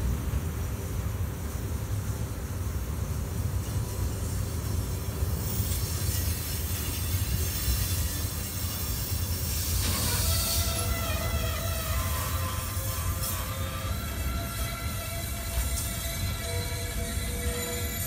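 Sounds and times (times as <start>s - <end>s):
freight train rumbling past: 0.0s - 18.0s
metallic wheel squeal: 5.4s - 18.0s.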